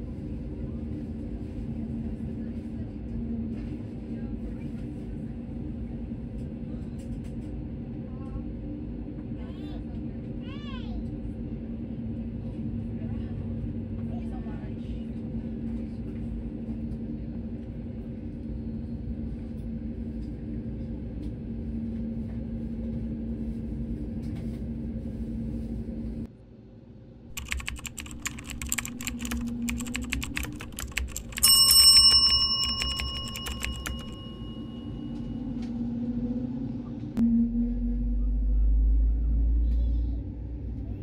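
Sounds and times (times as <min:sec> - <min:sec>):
sharp clicking and rattling: 0:27.3 - 0:34.2
bell-like chime: 0:31.2 - 0:35.3.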